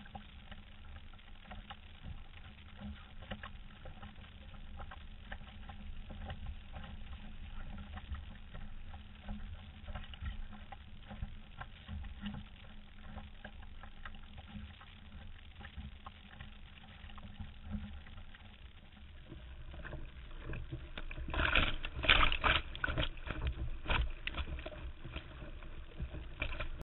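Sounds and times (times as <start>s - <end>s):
water washing along hull: 0.0s - 26.8s
knocks and splashes: 19.3s - 26.8s.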